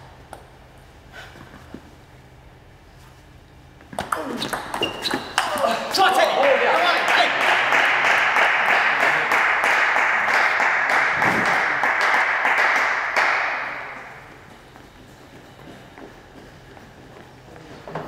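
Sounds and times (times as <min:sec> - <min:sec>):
spectators clapping: 0:05.4 - 0:14.2.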